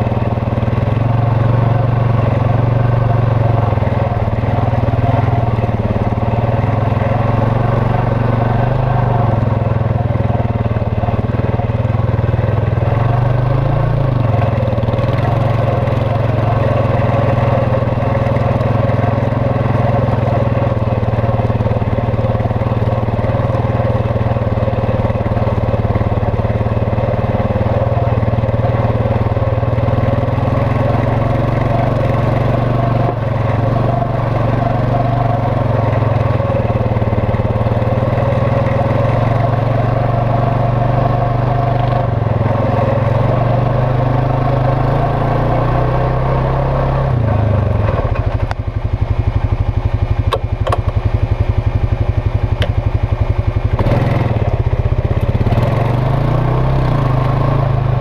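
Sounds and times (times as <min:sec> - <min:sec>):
quad engine running: 0:00.0 - 0:58.0.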